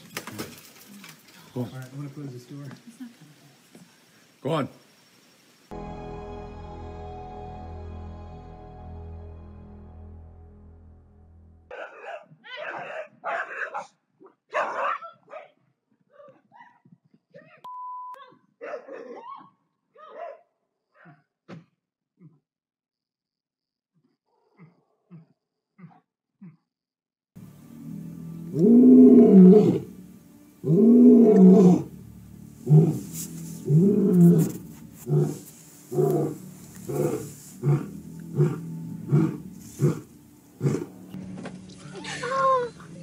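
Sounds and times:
dog barking loudly: 11.7s - 15.6s, 18.6s - 19.2s
censor bleep: 17.7s - 18.2s
large animal roaring: 27.9s - 30.0s, 30.6s - 32.0s, 32.6s - 41.1s
animal grunting calls: 32.6s - 41.0s.

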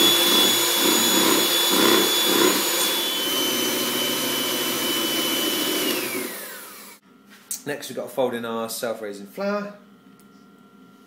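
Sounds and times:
electric mixer whirring: 0.0s - 7.0s.

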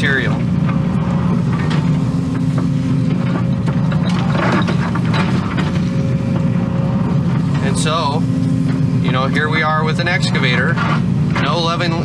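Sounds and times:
excavator engine and hydraulics: 0.0s - 12.0s.

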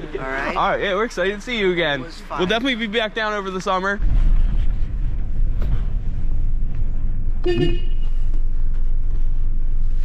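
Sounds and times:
car interior rumble: 0.0s - 10.0s
car horn toot: 7.4s - 8.3s.

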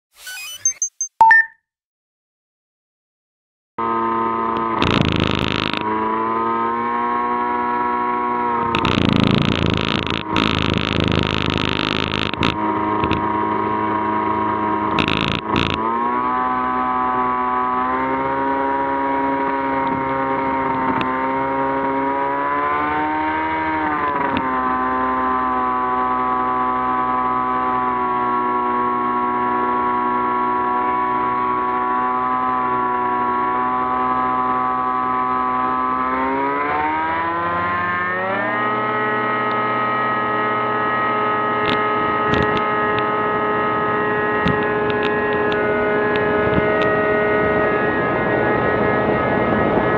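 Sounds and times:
aircraft piston engine and propeller: 9.7s - 21.2s, 38.9s - 49.9s.

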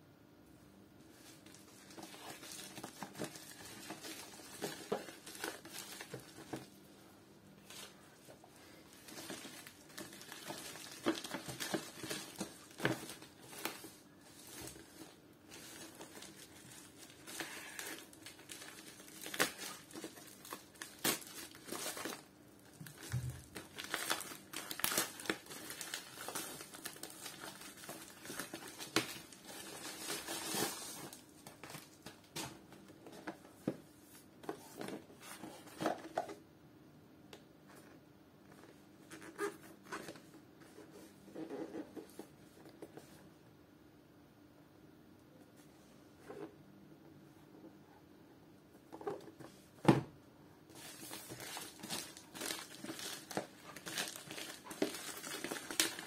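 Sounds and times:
plastic bag crinkling: 8.9s - 32.0s, 50.7s - 56.0s.

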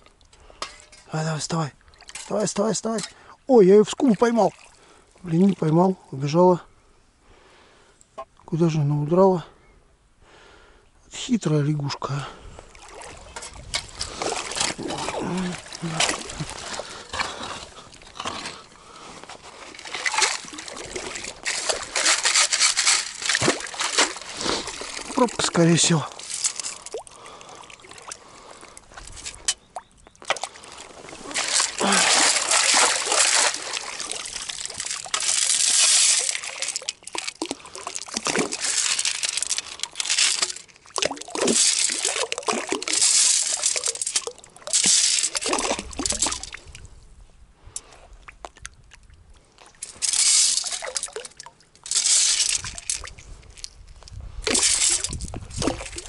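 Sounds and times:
water sloshing through metal scoop: 0.0s - 1.2s, 1.8s - 3.3s, 12.7s - 46.8s, 49.6s - 53.8s, 54.4s - 56.0s.

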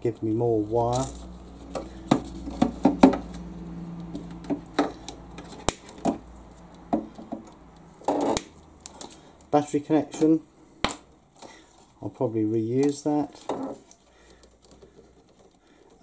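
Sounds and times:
wire handling noises: 0.6s - 12.1s, 12.7s - 16.0s
side cutters snipping wire: 4.7s - 6.1s, 7.6s - 9.2s.

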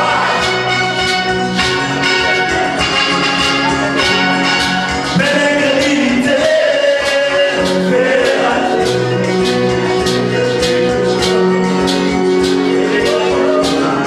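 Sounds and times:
men singing gospel: 0.0s - 0.7s, 5.1s - 14.0s
acoustic guitar: 0.0s - 14.0s
steady beat: 0.0s - 14.0s.

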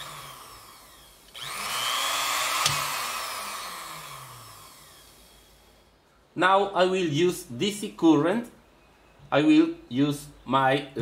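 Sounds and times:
sewing machine motor whine: 0.0s - 5.8s.

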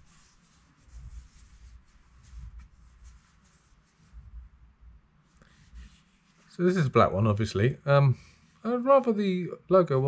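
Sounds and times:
hands rubbing a speaker: 0.0s - 4.6s, 5.2s - 6.9s.

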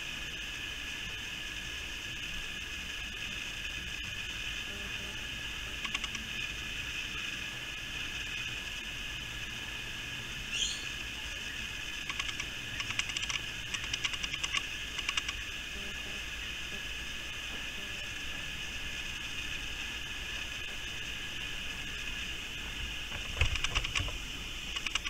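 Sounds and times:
high-pitched drone: 10.4s - 22.3s.

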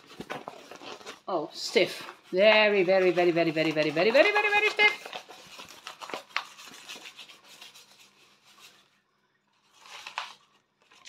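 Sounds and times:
stiff packaging rubbing and clicking: 0.0s - 8.8s
packaging rustle: 0.0s - 11.0s.

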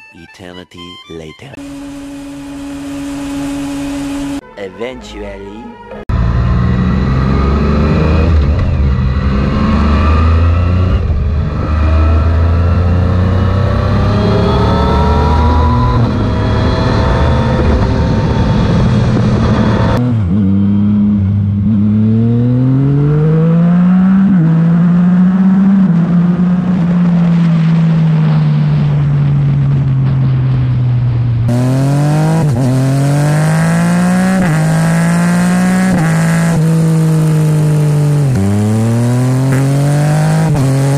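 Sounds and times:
motorcycle upshifts: 1.6s - 4.4s, 31.5s - 40.9s
motorcycle engine accelerating: 1.6s - 4.5s, 6.0s - 40.9s.

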